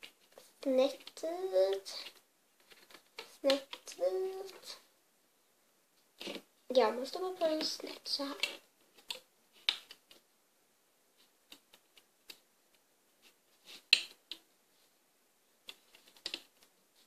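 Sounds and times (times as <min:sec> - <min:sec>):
rubber bands clicking and snapping: 0:11.5 - 0:12.5, 0:13.8 - 0:14.5, 0:15.6 - 0:16.7.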